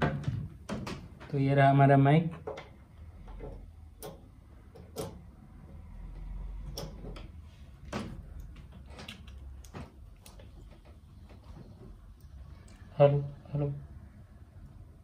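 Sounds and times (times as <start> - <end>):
equipment knocks and clicks: 0.0 - 1.4
low steady hum: 0.0 - 15.0.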